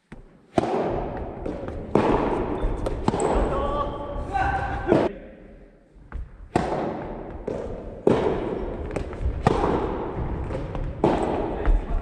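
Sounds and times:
ball bouncing on wooden floor: 0.1s - 3.5s, 6.0s - 12.0s
rackets striking ball: 0.1s - 5.1s, 6.1s - 12.0s.

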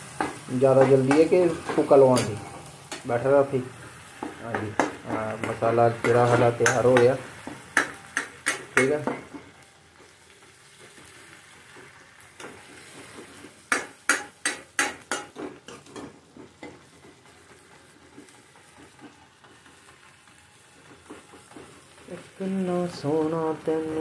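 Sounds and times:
food sizzling in a pan: 0.0s - 24.0s.

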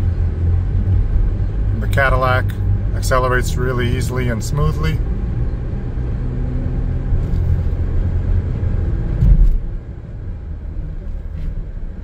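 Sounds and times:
car cabin road rumble: 0.0s - 12.0s
thump: 9.2s - 9.6s.

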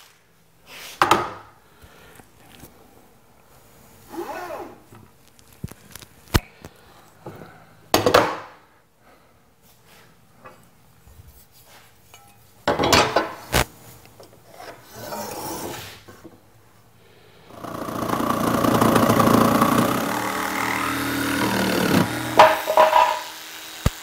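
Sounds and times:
tools scraping across boards: 14.4s - 16.2s
tools knocking on wood: 21.4s - 23.3s.

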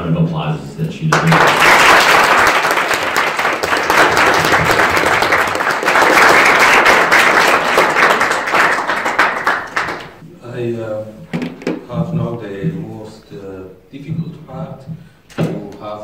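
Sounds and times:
audience applauding: 1.1s - 10.2s.

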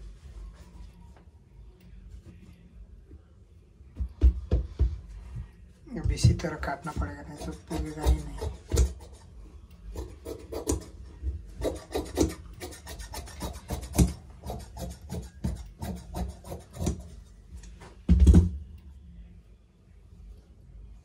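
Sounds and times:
scissors snipping fabric: 7.3s - 9.2s, 9.9s - 11.0s, 11.6s - 17.0s.

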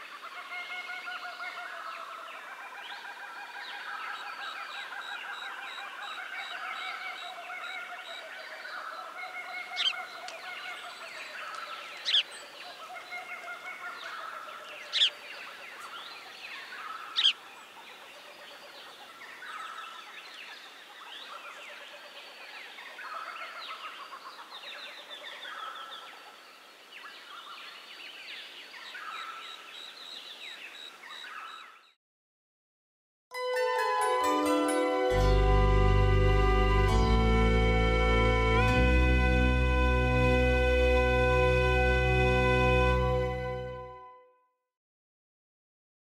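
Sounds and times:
small birds chirping: 1.1s - 32.0s.

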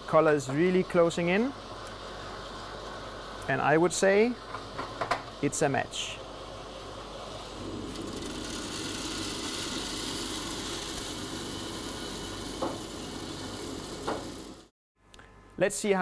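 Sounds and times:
coffee beans rattling in cooling bin: 7.9s - 14.7s.

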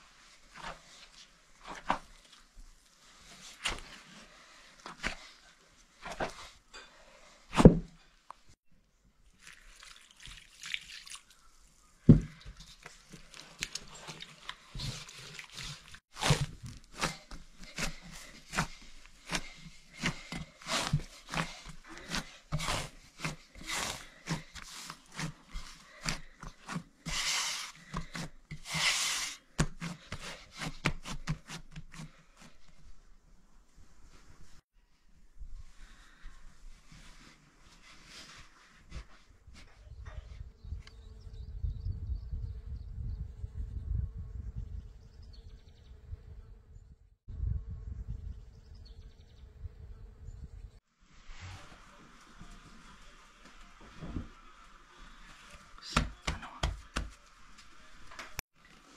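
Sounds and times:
hands kneading bread dough: 0.0s - 6.7s, 9.3s - 34.7s, 35.4s - 40.3s, 51.3s - 58.9s.

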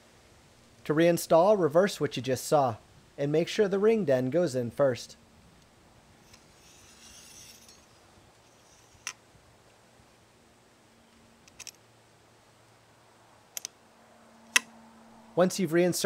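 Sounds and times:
metal-on-metal sliding: 6.2s - 9.2s.

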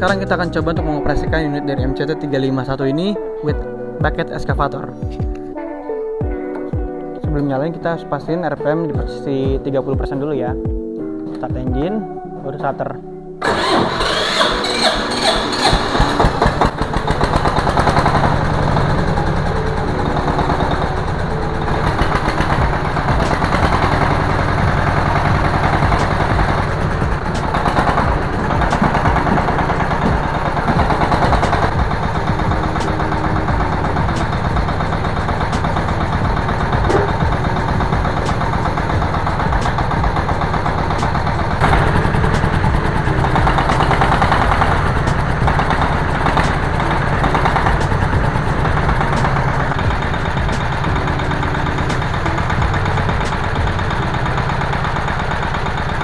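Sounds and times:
mini tractor engine running: 13.4s - 56.0s.

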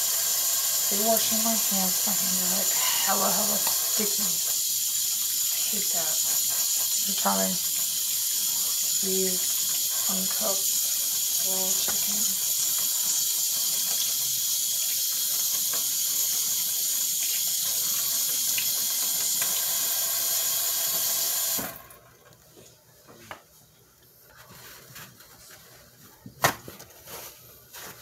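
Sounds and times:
tap water running: 0.0s - 22.3s.

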